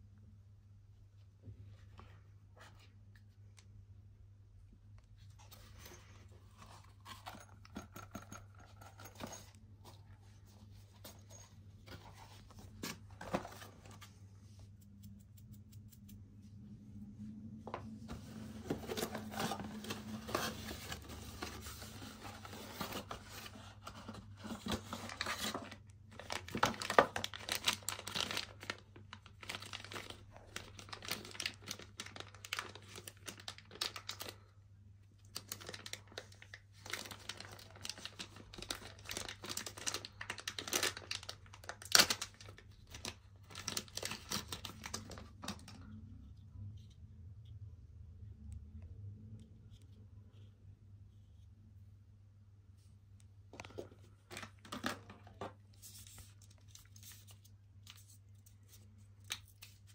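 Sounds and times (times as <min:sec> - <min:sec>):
plastic bag crinkling: 0:25.0 - 0:34.4, 0:35.4 - 0:45.6.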